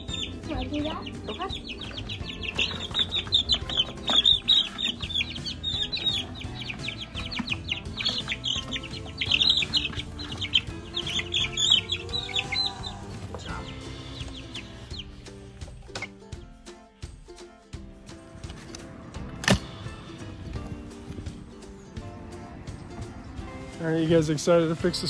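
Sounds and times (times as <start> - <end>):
chicks peeping: 0.0 - 16.6.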